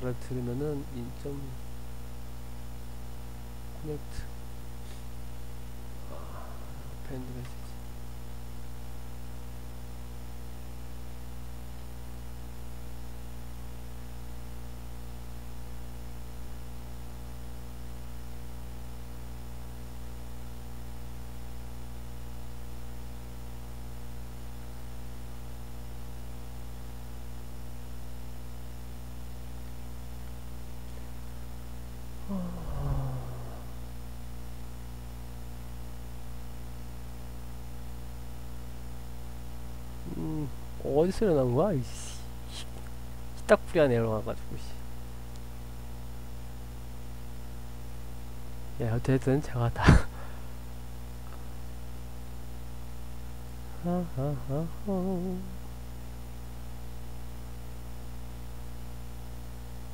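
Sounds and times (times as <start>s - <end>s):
electrical mains hum: 0.0s - 59.9s
person murmuring: 6.0s - 7.6s, 32.2s - 33.8s, 40.0s - 40.6s, 49.7s - 50.3s, 53.8s - 55.6s.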